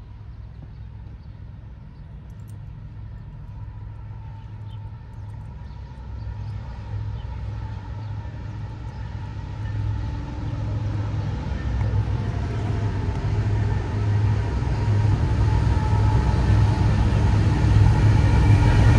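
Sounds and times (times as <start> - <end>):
diesel locomotive engine rumble: 0.0 - 18.9.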